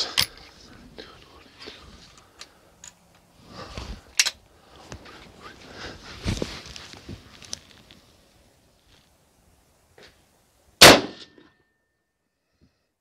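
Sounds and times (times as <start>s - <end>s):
rifle handling rustle: 0.0s - 9.2s.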